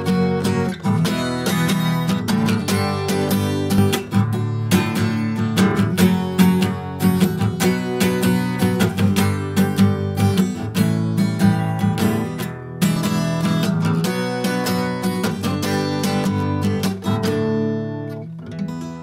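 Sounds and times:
acoustic guitar strumming chords: 0:00.0 - 0:19.0.

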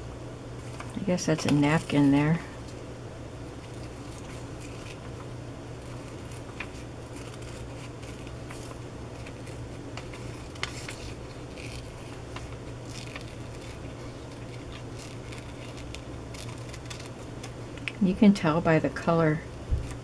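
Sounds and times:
steady low hum: 0:00.0 - 0:20.0
scissors snipping paper: 0:03.6 - 0:18.0.

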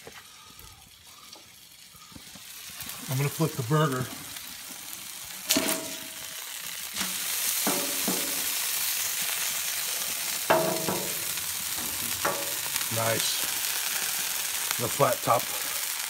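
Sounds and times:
burger sizzling on griddle: 0:00.0 - 0:16.0
metal spatula scraping griddle: 0:07.0 - 0:08.7.

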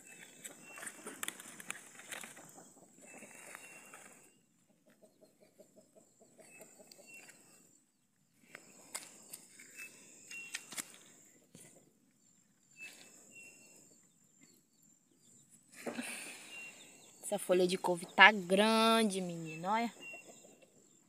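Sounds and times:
leaves rustling and clicking: 0:00.0 - 0:04.2, 0:08.5 - 0:11.2
chickens clucking: 0:00.5 - 0:07.6, 0:17.6 - 0:21.0.

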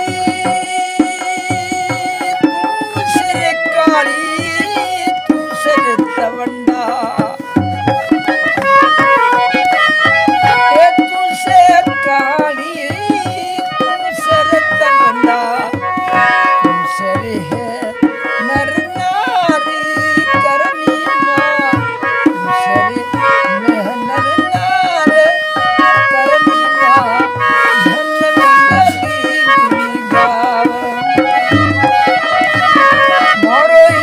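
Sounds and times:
hand drum beating: 0:00.0 - 0:34.0
held melodic notes: 0:00.0 - 0:34.0.

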